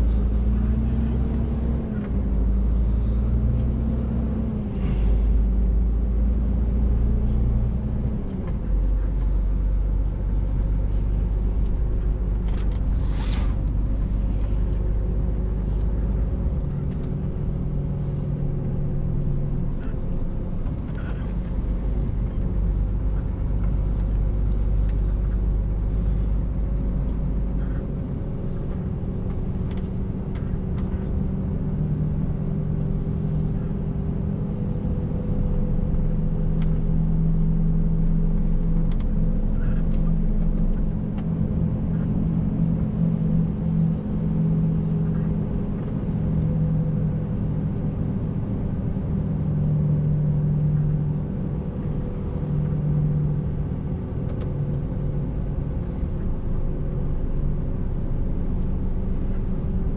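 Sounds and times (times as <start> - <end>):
deep low rumble: 0.0 - 59.9
road rumble: 0.0 - 59.9
truck diesel engine drone: 0.0 - 59.9.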